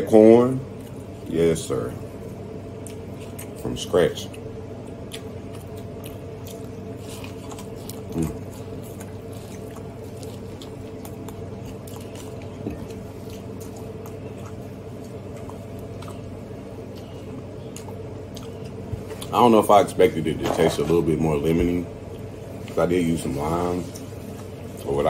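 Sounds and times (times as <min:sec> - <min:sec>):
steady low hum: 0:00.0 - 0:25.0
person chewing corn on the cob: 0:02.8 - 0:19.4.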